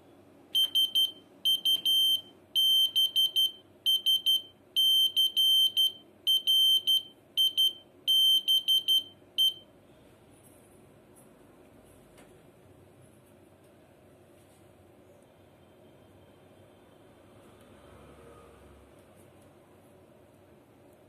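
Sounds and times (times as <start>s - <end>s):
buzzer beeping morse code: 0.6s - 9.6s.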